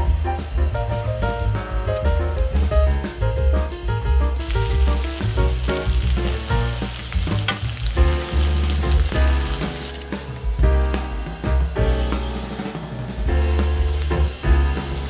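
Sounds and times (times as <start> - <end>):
music with heavy bass: 0.0 - 15.0
meat sizzling on griddle: 4.4 - 15.0
spatula turning meat: 4.7 - 10.1.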